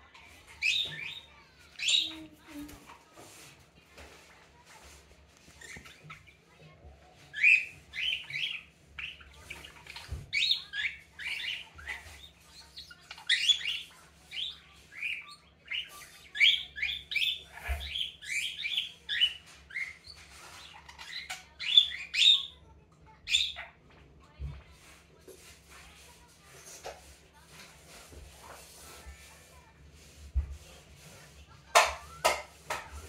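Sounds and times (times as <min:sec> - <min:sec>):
budgerigar chirping: 0:07.3 - 0:22.6.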